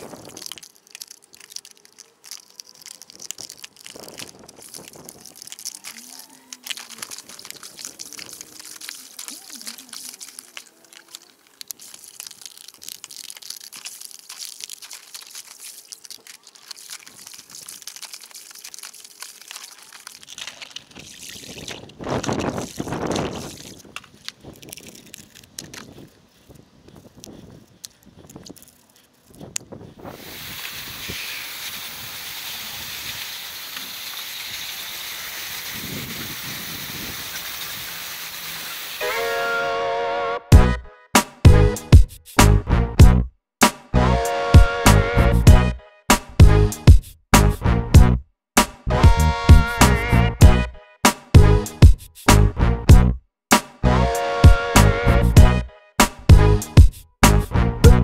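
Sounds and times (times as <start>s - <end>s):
soapy water splashing: 0.0s - 25.4s
foam crackling: 0.0s - 26.0s, 30.0s - 39.7s.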